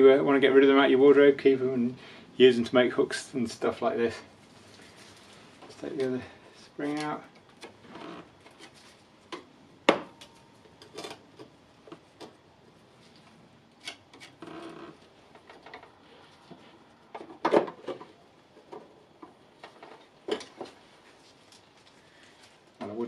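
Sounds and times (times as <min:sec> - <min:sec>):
tools scraping metal tube: 0:13.8 - 0:14.9.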